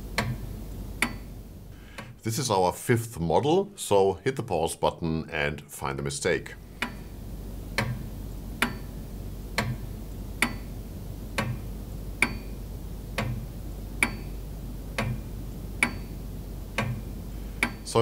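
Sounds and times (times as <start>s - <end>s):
clock ticking: 0.1s - 0.4s, 6.8s - 7.1s, 7.7s - 8.9s, 9.6s - 10.7s, 11.3s - 14.3s, 14.9s - 18.0s.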